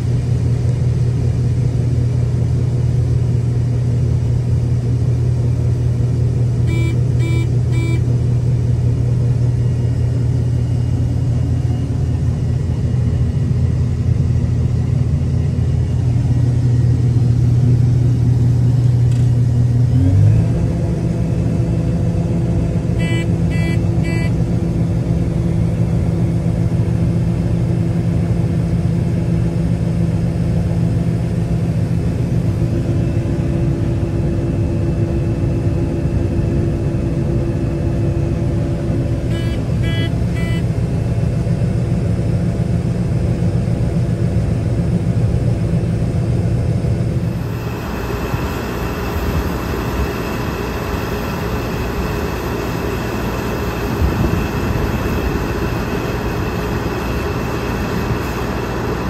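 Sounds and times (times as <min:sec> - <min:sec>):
tractor engine droning: 0:00.0 - 0:59.0
quick electronic beeps: 0:06.7 - 0:08.0, 0:39.3 - 0:40.6.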